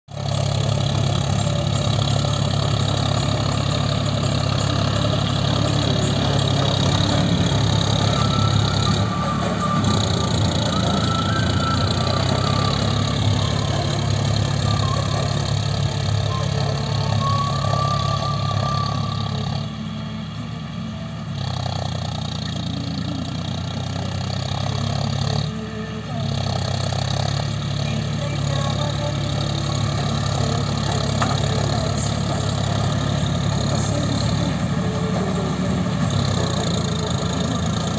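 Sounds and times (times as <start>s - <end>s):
tractor diesel engine running: 0.0s - 37.9s.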